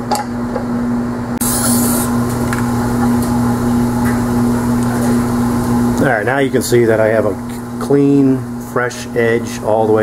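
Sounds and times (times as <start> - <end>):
short hiss: 1.4 - 2.2
grinder motor hum: 1.4 - 10.0.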